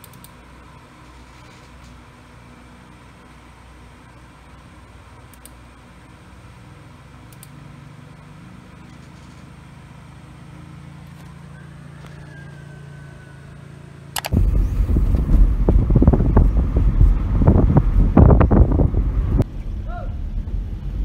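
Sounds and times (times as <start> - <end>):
wind buffeting microphone: 14.3 - 19.4
car driving rumble from inside: 14.3 - 21.0.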